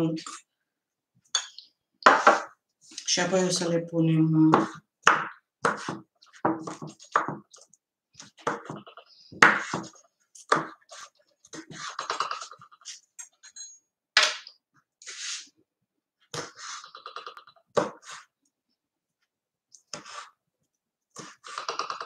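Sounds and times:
knife chopping on wooden board: 0:04.5 - 0:07.4, 0:09.4 - 0:09.9, 0:10.5 - 0:10.8.

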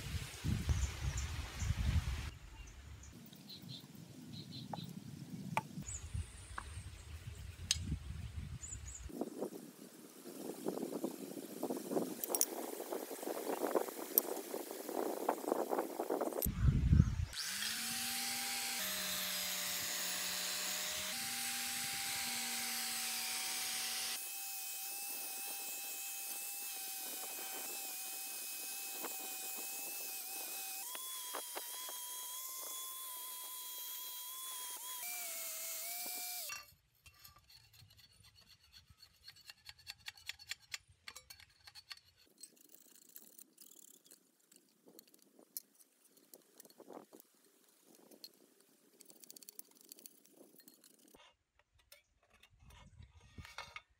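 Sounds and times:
angle grinder wire wheel grinding: 0:17.3 - 0:51.2
hand scraper scraping metal: 0:35.5 - 0:44.2.

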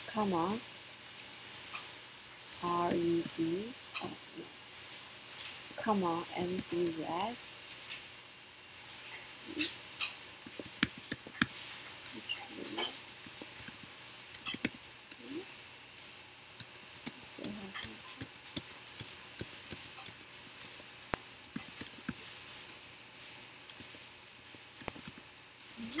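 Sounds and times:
keyboard typing: 0:05.8 - 0:07.3, 0:10.4 - 0:22.6, 0:24.8 - 0:26.0.

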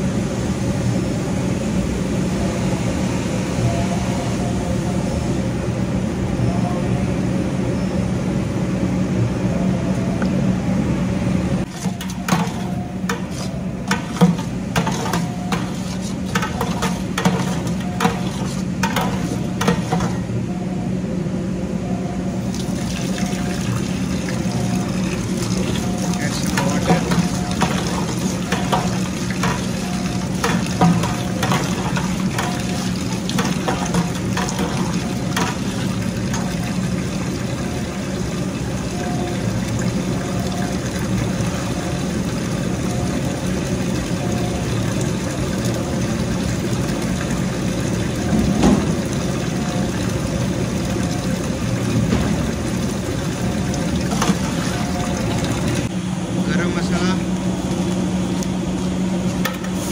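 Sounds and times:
paddle scraping and knocking pot: 0:11.7 - 0:20.2
tap water pouring into a pot: 0:22.5 - 0:55.9.

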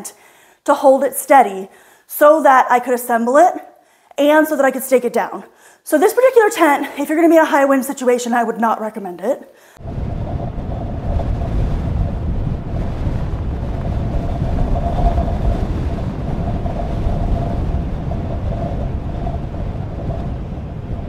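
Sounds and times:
wind buffeting microphone: 0:09.8 - 0:21.0.

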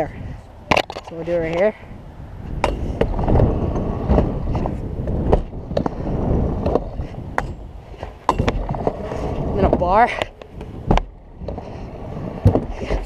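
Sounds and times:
scooter wheels rolling on concrete: 0:00.0 - 0:13.0
scooter deck clacking on ramps: 0:02.6 - 0:11.6, 0:12.4 - 0:13.0.

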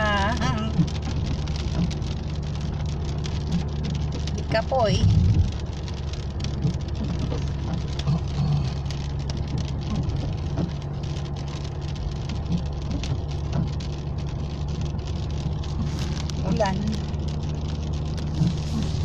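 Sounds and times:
engine and tyres rumbling: 0:00.0 - 0:19.0
raindrops hitting car roof: 0:00.0 - 0:19.0.

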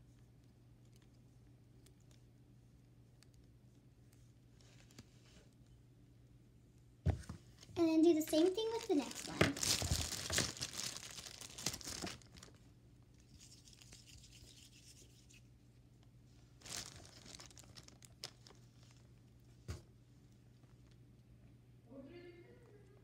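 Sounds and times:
plastic wrapper crinkling: 0:08.0 - 0:12.7, 0:13.3 - 0:15.4, 0:16.6 - 0:19.3.

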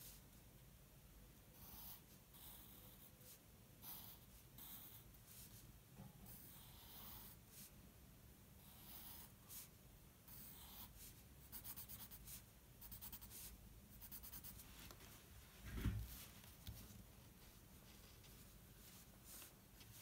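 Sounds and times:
pencil scratching on paper: 0:01.6 - 0:05.6, 0:06.3 - 0:07.7, 0:08.6 - 0:09.7, 0:10.3 - 0:14.6.

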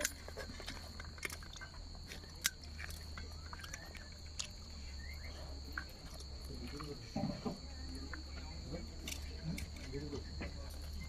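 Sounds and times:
chewing: 0:00.0 - 0:08.3
high insect trill: 0:00.0 - 0:11.0.

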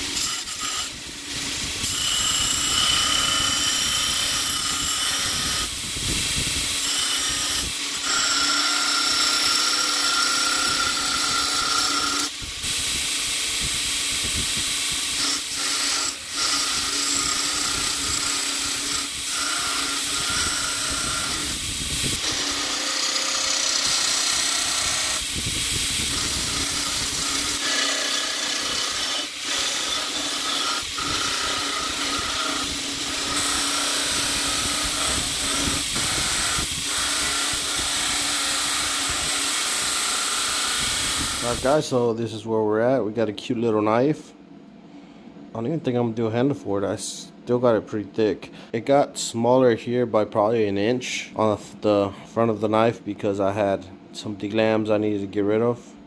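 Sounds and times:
belt grinder grinding steel: 0:00.0 - 0:41.8.

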